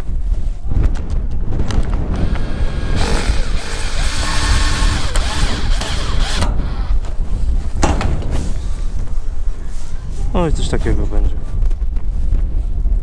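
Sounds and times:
wind rumble on microphone: 0:00.0 - 0:13.0
cordless drill driving a screw: 0:02.2 - 0:07.0.

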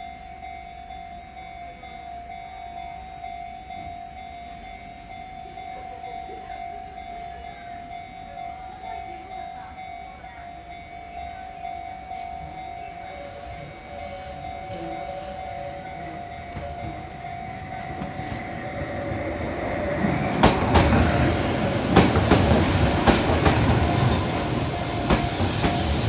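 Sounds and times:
level crossing warning bell: 0:00.0 - 0:26.0
lower warning tone: 0:10.5 - 0:22.0.

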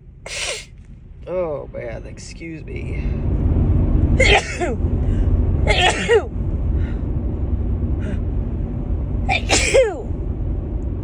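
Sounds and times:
steady low rumble: 0:00.0 - 0:11.0
woman sneezing: 0:09.3 - 0:10.0.

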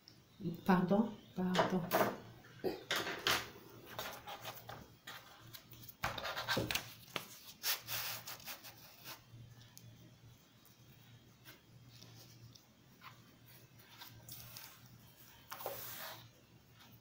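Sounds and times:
paper rustling and scraping: 0:03.9 - 0:09.2, 0:13.0 - 0:16.3.

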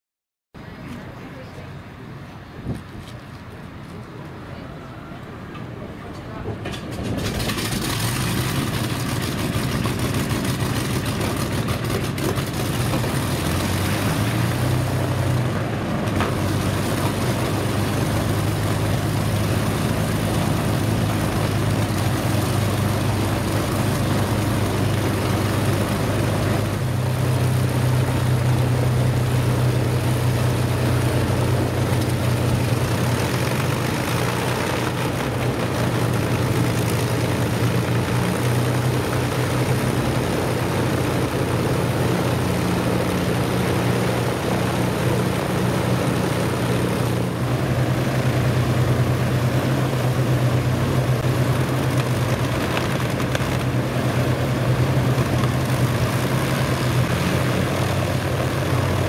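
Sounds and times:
piston aircraft engines idling: 0:00.6 - 0:59.0.

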